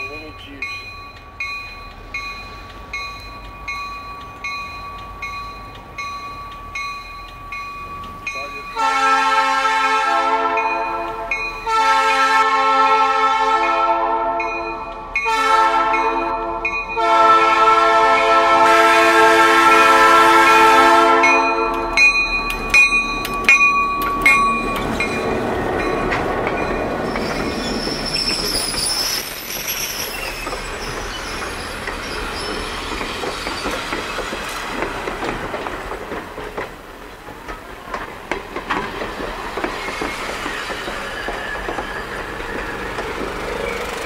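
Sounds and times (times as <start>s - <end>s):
locomotive air horn blasts: 8.8s - 14.6s, 15.2s - 21.8s
wheels clicking over rail joints: 19.6s - 44.0s
faint high wheel squeal: 26.6s - 34.3s, 39.7s - 44.0s.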